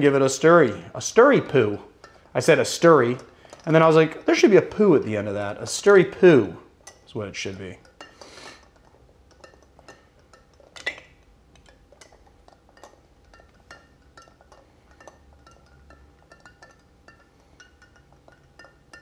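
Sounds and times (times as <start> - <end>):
spoon and ice clinking in glass: 7.8 - 19.0.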